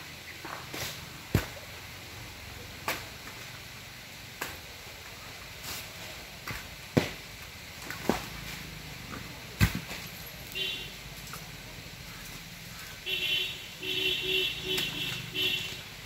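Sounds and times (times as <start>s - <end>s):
coconuts thudding on ground: 0.4s - 1.7s, 6.4s - 8.4s, 9.1s - 10.2s.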